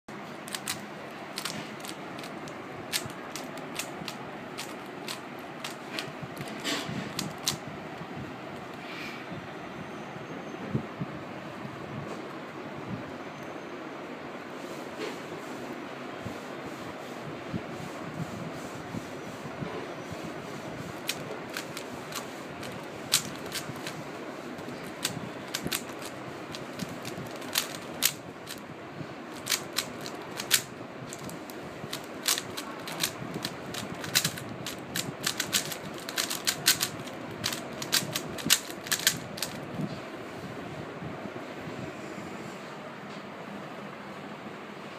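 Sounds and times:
speed cube clicking: 0:00.4 - 0:07.6, 0:20.9 - 0:28.6, 0:29.3 - 0:39.7.

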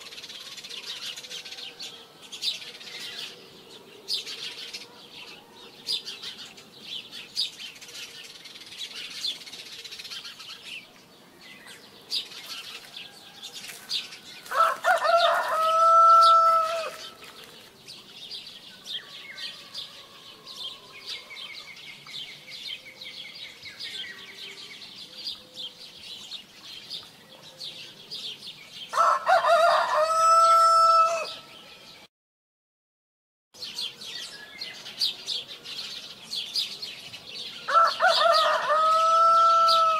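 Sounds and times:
rooster crowing: 0:14.4 - 0:17.1, 0:28.9 - 0:31.5, 0:37.7 - 0:39.9.

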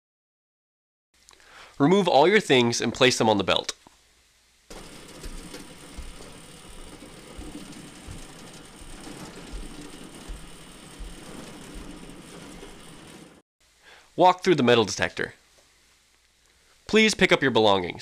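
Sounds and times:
trays rattling on roller conveyor: 0:04.7 - 0:13.4.

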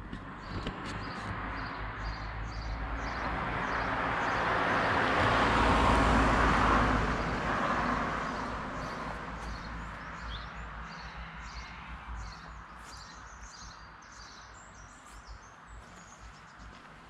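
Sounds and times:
car passing by: 0:01.0 - 0:13.0.

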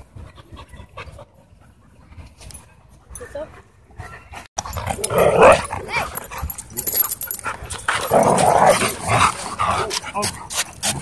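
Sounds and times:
dogs growling: 0:04.6 - 0:11.0.

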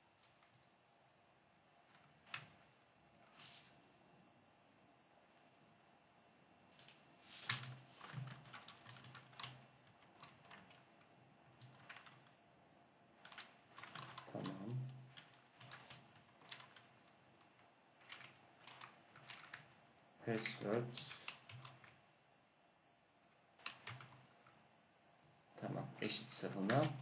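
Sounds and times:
keyboard typing: 0:01.9 - 0:02.7, 0:06.8 - 0:12.4, 0:13.2 - 0:22.0, 0:23.6 - 0:24.6, 0:26.0 - 0:27.0.

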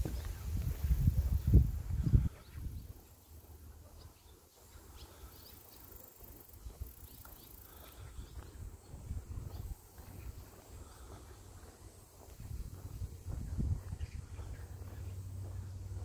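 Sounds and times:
wind rumbling on microphone: 0:00.0 - 0:03.0, 0:08.0 - 0:16.0
small birds chirping: 0:00.0 - 0:16.0.

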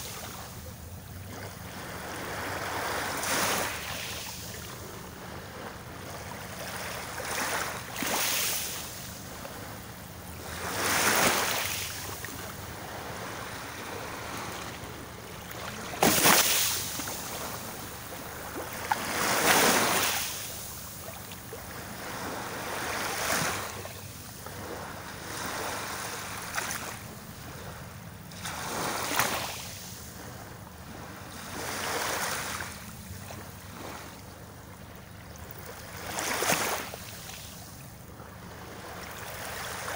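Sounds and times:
waves washing onto rocky shore: 0:15.7 - 0:17.7.

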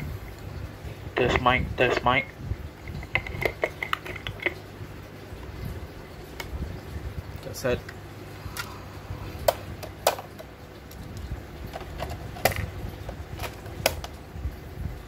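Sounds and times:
plastic cassette clicks: 0:13.4 - 0:14.2.

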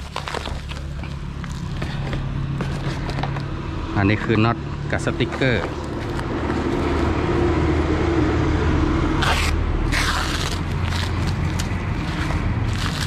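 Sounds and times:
packing tape ripping: 0:00.0 - 0:01.8, 0:09.2 - 0:13.0
plastic crinkling: 0:00.0 - 0:03.2, 0:05.7 - 0:07.2, 0:09.2 - 0:13.0.

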